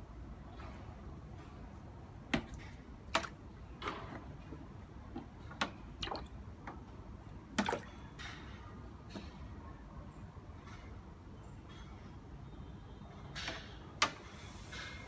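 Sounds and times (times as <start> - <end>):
water splashes in plastic tub: 2.3 - 6.8, 7.5 - 8.0.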